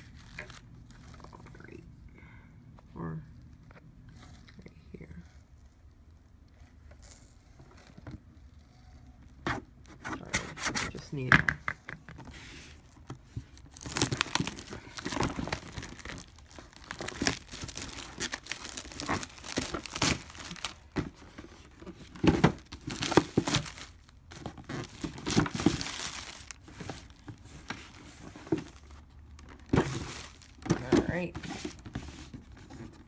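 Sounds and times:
cardboard box handled: 12.2 - 33.0
plastic wrapping crinkling: 12.6 - 33.0.

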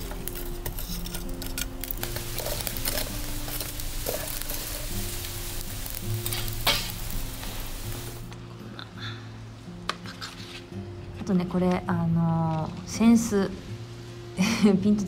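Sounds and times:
charcoal crackling and hissing: 0.0 - 9.0
soft background music: 0.0 - 15.0.

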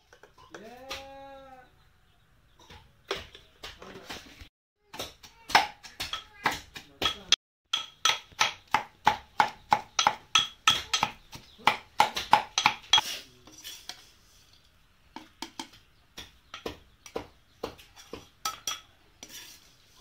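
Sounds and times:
metal pestle pounding in mortar: 4.9 - 13.0
metal spoon scraping a wok: 12.9 - 14.7, 18.0 - 20.0.

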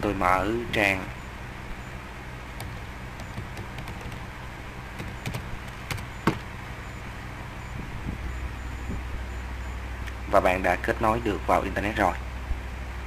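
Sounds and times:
steady low hum: 0.0 - 13.0
keyboard keys clicking: 2.6 - 4.2, 5.0 - 6.5.

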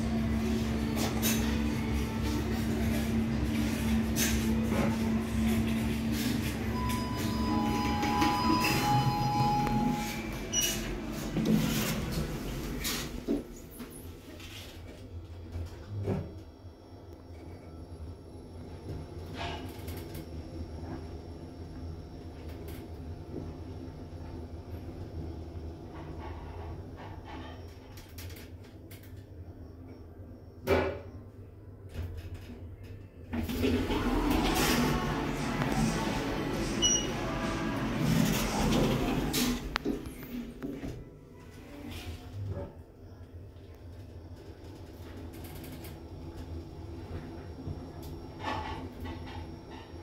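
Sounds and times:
lift doors closing: 0.0 - 13.5, 33.4 - 40.6
elevator hum: 0.0 - 13.9, 33.3 - 41.8
elevator clunk: 33.4 - 40.2
lobby noise: 33.7 - 39.7.

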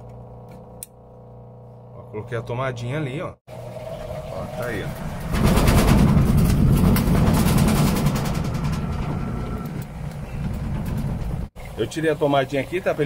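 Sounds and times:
washing machine motor whirring: 3.5 - 11.5.

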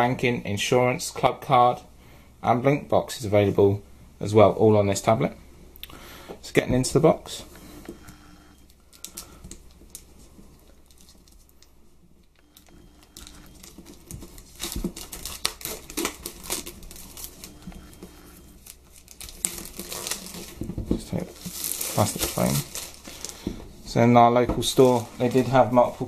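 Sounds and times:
plastic wrap crackling: 8.6 - 26.0
plastic wrap rustling: 8.6 - 26.0.

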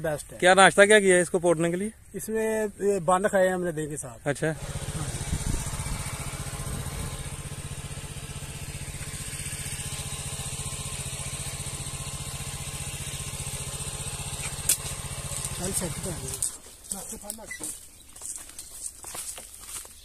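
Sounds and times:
small engine chugging: 4.5 - 17.7
sharp click: 14.4 - 15.6.

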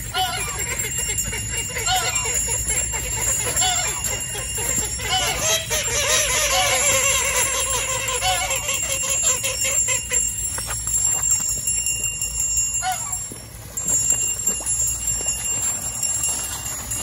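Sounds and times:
hand bell ringing: 0.0 - 17.0
duck quacking: 0.1 - 10.2.

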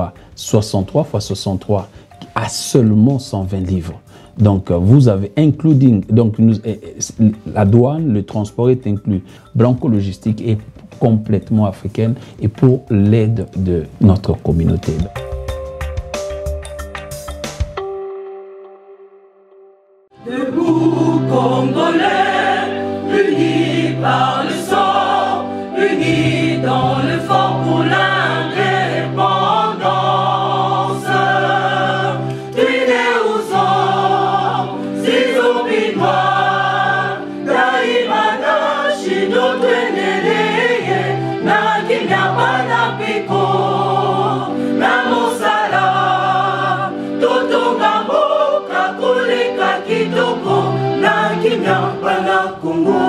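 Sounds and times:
choir singing gospel song: 20.2 - 53.0.

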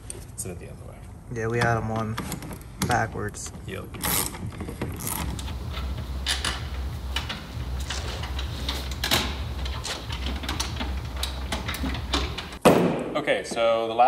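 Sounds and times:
steady low hum: 3.4 - 12.6
metal parts and tools clinking: 3.9 - 12.6.

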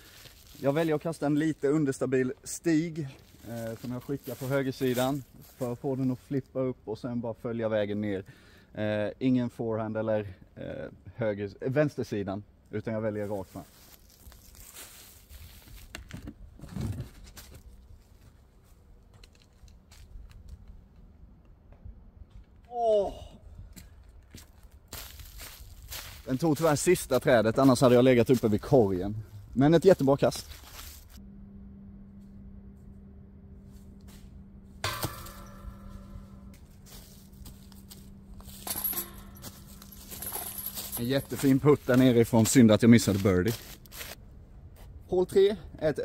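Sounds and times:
footsteps: 23.7 - 31.2, 33.6 - 44.2
disc hitting metal basket: 34.7 - 37.8, 38.4 - 41.0
metallic clinking: 34.8 - 37.4, 38.4 - 41.6.

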